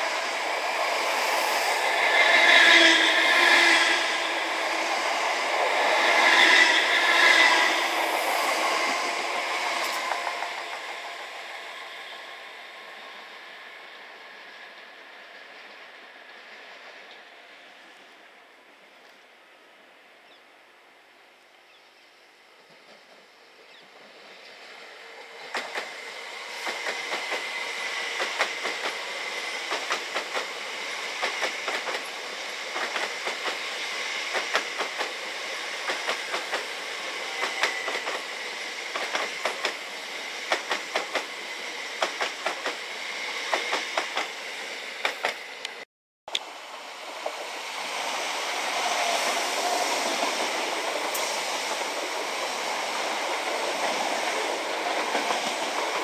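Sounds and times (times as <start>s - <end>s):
train rushing past: 0.0s - 18.7s, 22.4s - 45.8s, 46.4s - 56.0s
train wheels clicking over rail joints: 5.5s - 11.6s, 25.3s - 45.8s, 49.0s - 56.0s.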